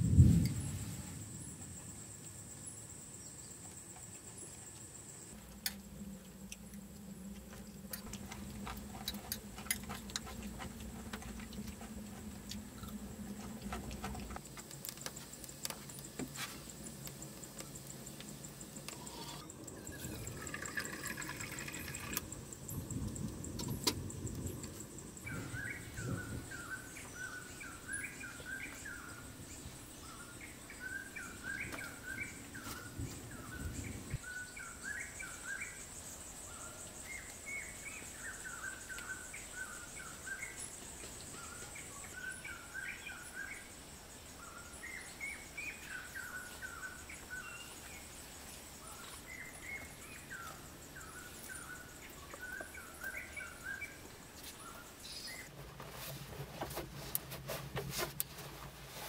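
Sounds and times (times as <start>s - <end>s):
low irregular noise: 0.0s - 59.0s
small birds chirping: 6.2s - 55.6s
high insect buzz: 15.1s - 26.3s.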